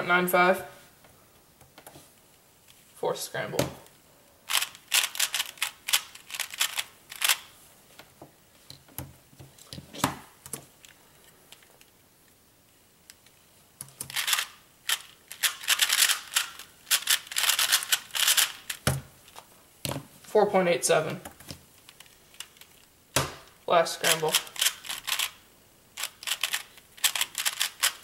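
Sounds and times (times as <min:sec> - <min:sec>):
puzzle cube layers clacking: 0:04.5 - 0:07.5, 0:13.8 - 0:18.9, 0:24.0 - 0:25.4, 0:26.0 - 0:28.0.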